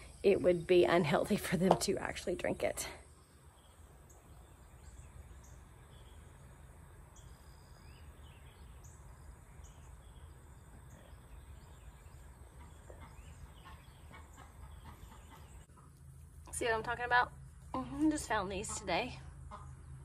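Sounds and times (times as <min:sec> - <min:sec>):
insect drone: 0:03.0 - 0:12.4
soft bird chirps: 0:03.0 - 0:15.9.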